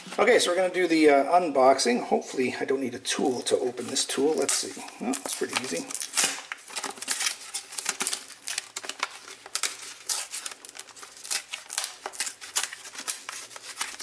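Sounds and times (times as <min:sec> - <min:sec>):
blister package tearing and crinkling: 0:03.4 - 0:14.0.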